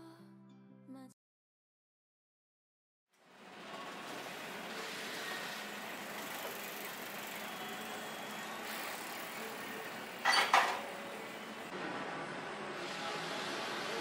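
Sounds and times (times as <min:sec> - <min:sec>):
traffic hiss: 0:03.4 - 0:10.2, 0:10.9 - 0:14.0.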